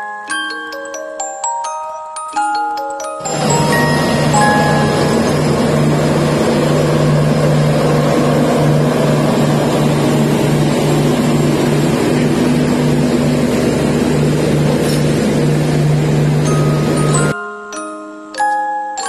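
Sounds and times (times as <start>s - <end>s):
train diesel engines humming: 3.2s - 17.3s.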